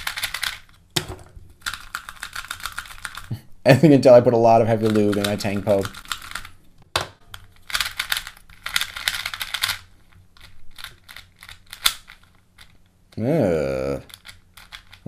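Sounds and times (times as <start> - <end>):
plastic puzzle cube clicking: 0.0 - 0.7, 1.6 - 3.3, 4.8 - 6.5, 7.3 - 12.7, 14.1 - 15.0.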